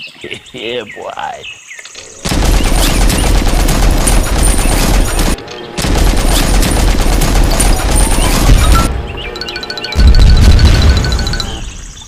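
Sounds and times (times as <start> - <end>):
machine-gun fire: 2.2 - 8.9.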